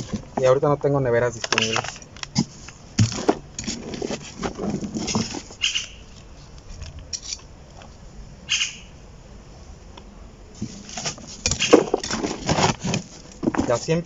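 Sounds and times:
trowel scraping soil: 1.6s - 5.9s, 10.6s - 14.0s.

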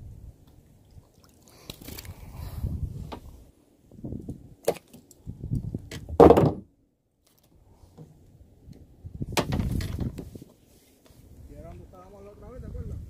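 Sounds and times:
loud thump: 6.1s - 6.7s
knocks on plastic kayak: 6.2s - 6.6s.

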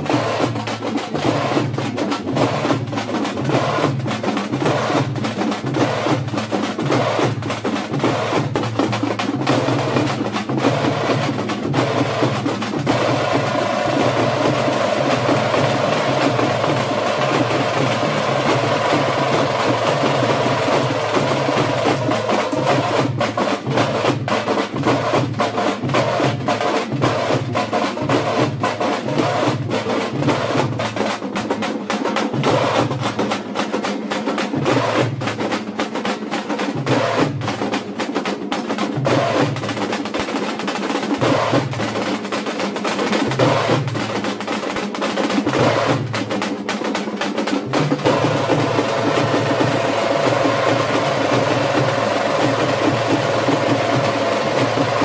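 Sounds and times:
frame drums beaten fast: 0.0s - 55.0s
deep pulsing drum beat: 47.6s - 55.0s.

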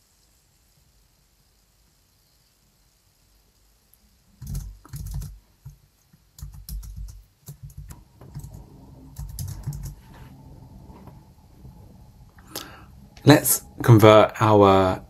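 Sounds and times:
typing on keyboard: 4.4s - 5.8s, 6.4s - 10.0s.

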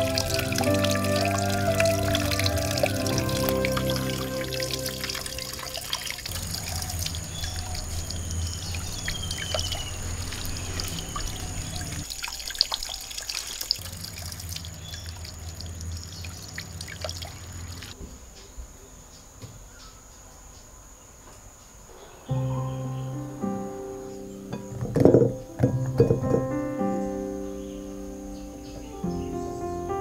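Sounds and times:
water trickling and dripping: 0.0s - 18.0s.

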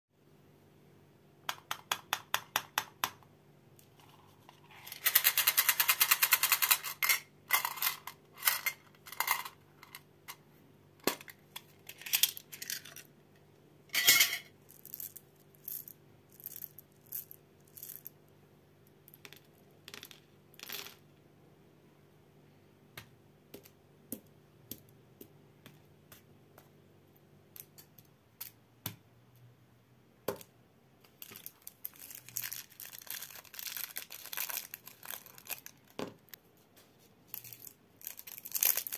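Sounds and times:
mints rattling in a tin: 4.1s - 10.1s, 11.2s - 13.1s, 14.0s - 18.2s, 31.2s - 35.9s, 37.3s - 38.9s
mints pouring into a hand: 31.3s - 35.8s, 37.3s - 38.9s.

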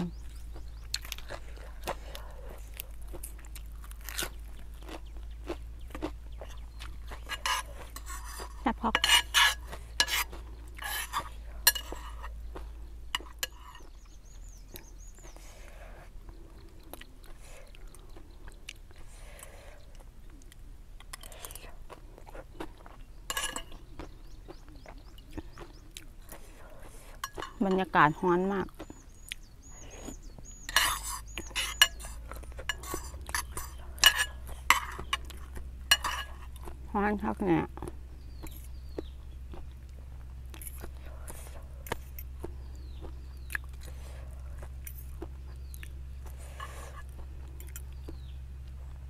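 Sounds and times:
spoon and fork scraping a pan: 7.1s - 12.4s, 13.1s - 13.9s, 23.3s - 23.7s, 27.2s - 27.8s, 30.6s - 36.6s, 46.6s - 47.1s.

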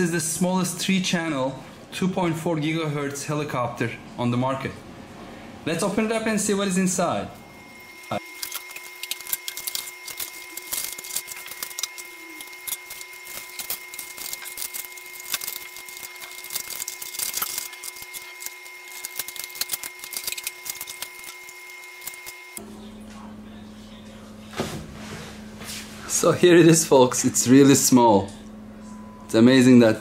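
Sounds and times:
packaging crinkling and crackling: 8.0s - 22.6s.

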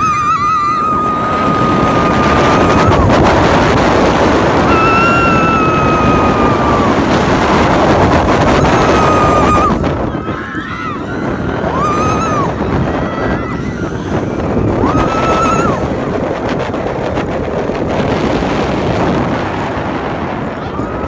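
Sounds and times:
riders screaming: 0.0s - 3.2s, 4.6s - 7.7s, 8.3s - 15.9s
wind rushing over microphone: 0.0s - 21.0s.

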